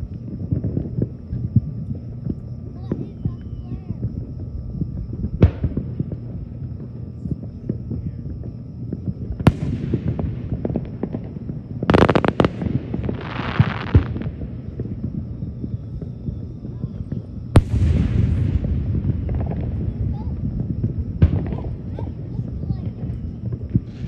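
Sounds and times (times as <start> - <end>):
fireworks bursting with bangs: 0.0 - 24.0
crackling pops: 4.8 - 24.0.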